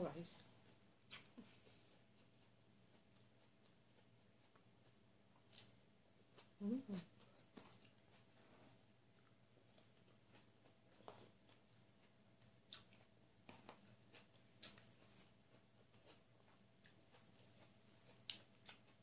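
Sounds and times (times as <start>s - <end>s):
person chewing food: 0.6s - 19.0s.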